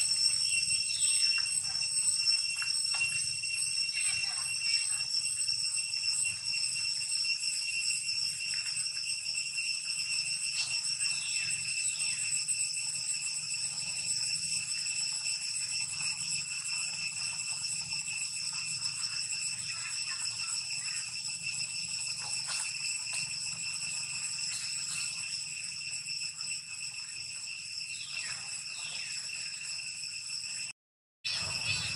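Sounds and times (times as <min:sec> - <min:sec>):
shrill insect chorus: 0:00.0 - 0:31.9.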